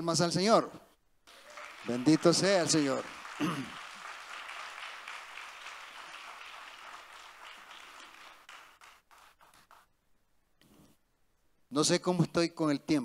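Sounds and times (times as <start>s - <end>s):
congregation applauding: 1.3s - 9.9s.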